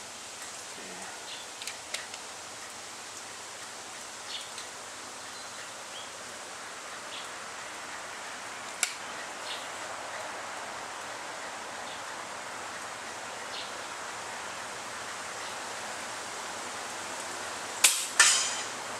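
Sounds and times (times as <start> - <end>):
outdoor background hiss: 0.0 - 18.9.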